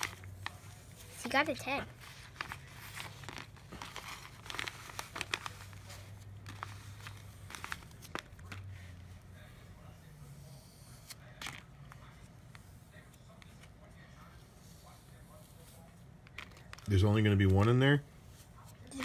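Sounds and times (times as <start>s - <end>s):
plastic packaging crinkling: 2.0s - 8.9s.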